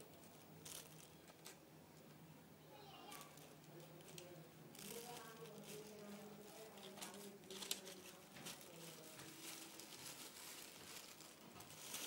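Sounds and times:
wrapper crinkling and crackling: 0.0s - 1.6s, 3.0s - 12.0s
faint voices: 2.6s - 12.0s.

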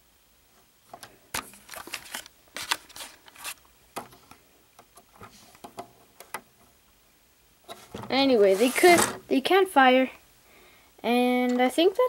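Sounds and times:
short scrapes: 7.7s - 9.2s.

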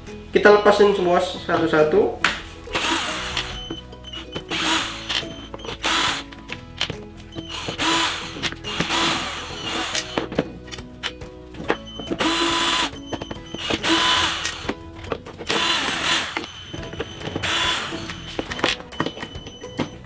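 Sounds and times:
cordless drill whirring: 2.7s - 6.2s, 7.4s - 10.3s, 12.0s - 14.7s, 15.5s - 19.3s.

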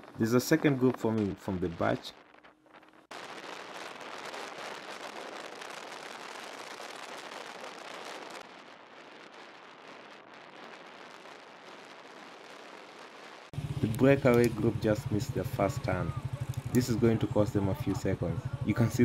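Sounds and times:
tyres on tarmac: 13.6s - 19.0s.

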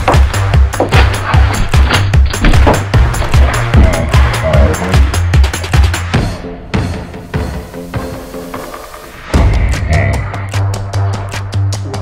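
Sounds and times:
music with heavy beat: 0.0s - 12.0s.

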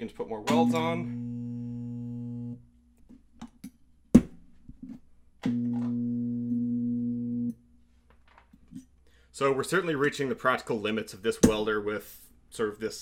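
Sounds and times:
spot welder buzzing: 0.5s - 2.6s.

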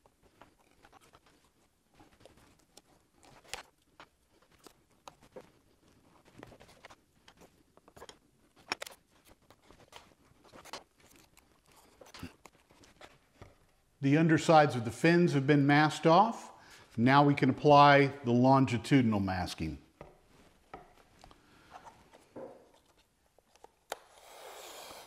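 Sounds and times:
masking tape rustling: 0.0s - 14.0s, 19.9s - 25.0s.

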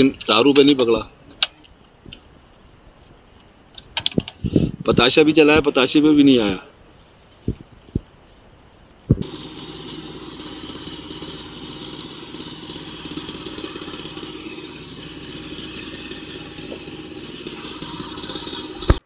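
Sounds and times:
boat engine running: 9.1s - 19.0s.

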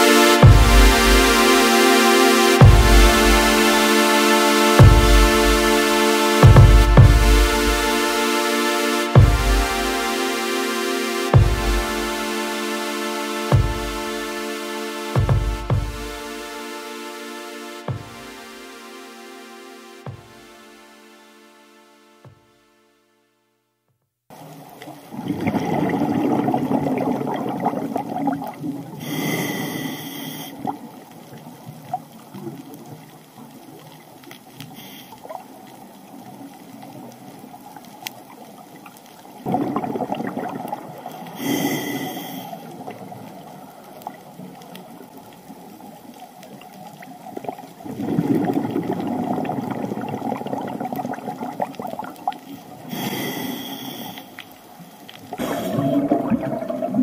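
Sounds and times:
exhaled bubbles underwater: 25.0s - 29.0s, 38.2s - 41.4s, 42.6s - 53.0s, 55.2s - 57.0s
hissing inhale through regulator: 29.0s - 30.7s, 34.7s - 35.4s, 41.1s - 42.9s, 52.5s - 56.2s.

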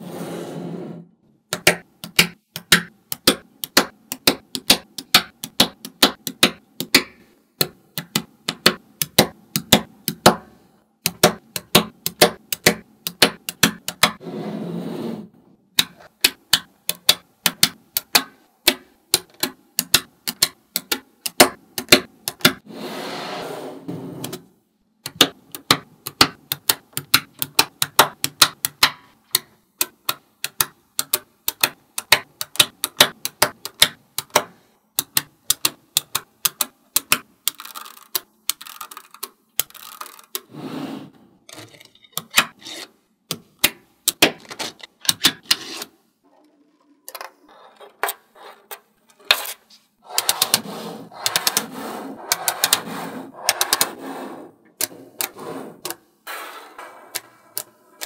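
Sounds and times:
magnetic balls clicking: 15.8s - 22.6s, 25.0s - 40.5s.

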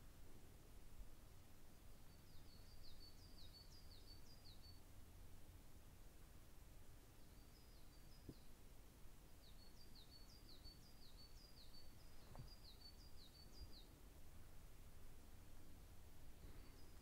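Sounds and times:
small bird chirping: 2.0s - 4.9s, 7.2s - 8.6s, 9.4s - 14.0s, 16.3s - 17.0s
soft thumps: 12.2s - 12.6s
low outdoor rumble: 13.9s - 17.0s.

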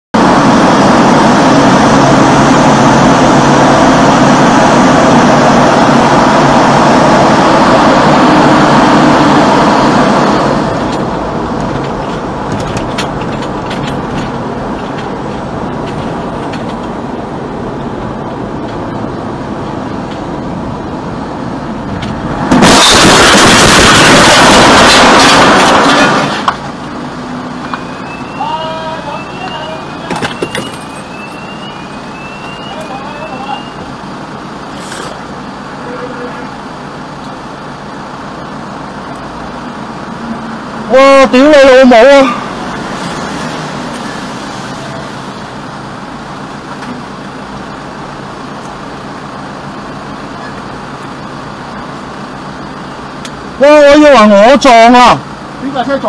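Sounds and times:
engine and road hum: 0.1s - 56.0s
tyre and road noise in a tunnel: 0.2s - 56.0s
car crashing and sliding: 22.2s - 26.7s.

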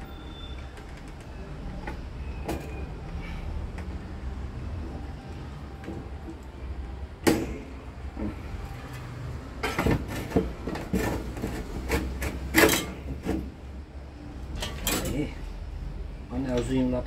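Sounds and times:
tools and parts clicking and knocking: 8.9s - 13.5s, 14.5s - 15.3s.

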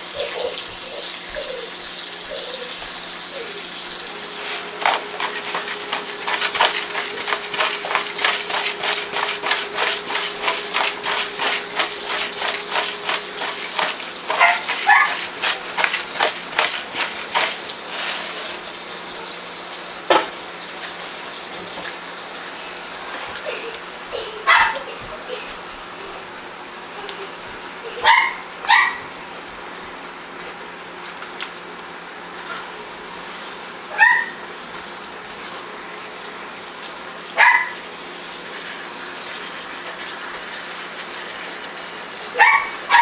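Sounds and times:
dog barking: 14.3s - 15.2s, 24.5s - 24.8s, 28.0s - 29.1s, 33.9s - 34.4s, 37.4s - 37.8s, 42.4s - 43.0s.

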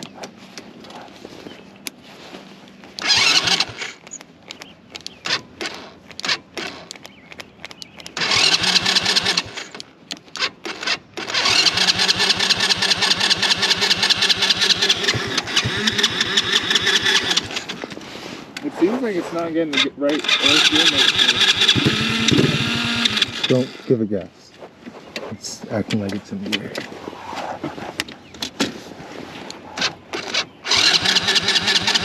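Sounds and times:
small engine starting and running: 3.0s - 4.0s, 5.2s - 7.0s, 8.2s - 18.0s, 19.6s - 24.0s, 29.8s - 32.0s.

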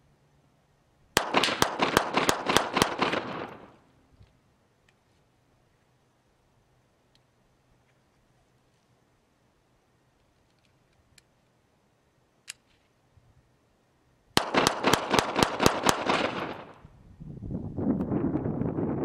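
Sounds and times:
gunshot echo: 1.2s - 3.8s
rapid pistol shots: 1.2s - 3.8s, 14.4s - 16.8s.

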